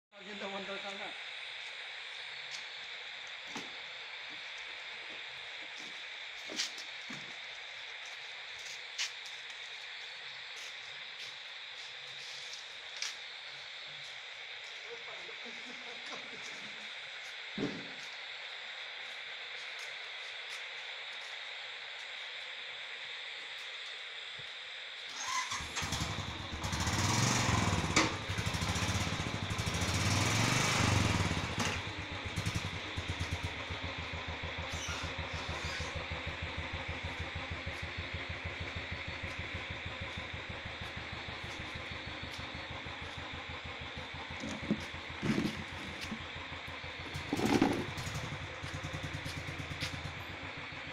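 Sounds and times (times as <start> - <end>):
vehicle engine starting and idling: 25.2 - 50.9.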